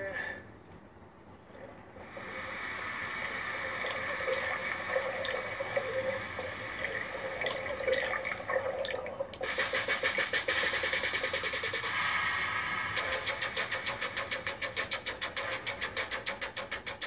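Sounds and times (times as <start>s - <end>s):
underwater bubbling: 2.0s - 9.4s.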